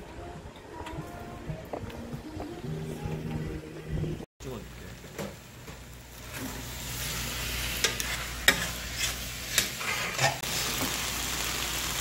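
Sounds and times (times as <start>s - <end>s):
food sizzling on a hot pan: 4.4s - 12.0s.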